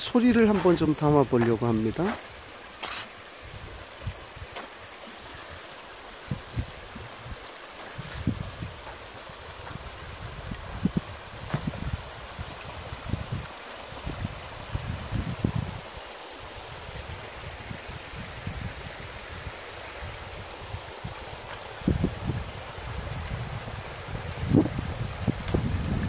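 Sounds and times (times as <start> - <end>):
stream rushing over rocks: 0.0 - 26.0
wind buffeting microphone: 5.3 - 16.0, 16.6 - 26.0.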